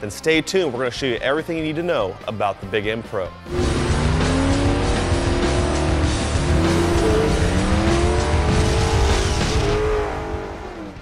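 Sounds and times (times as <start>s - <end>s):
music: 0.0s - 11.0s
race car engine revving: 3.5s - 11.0s.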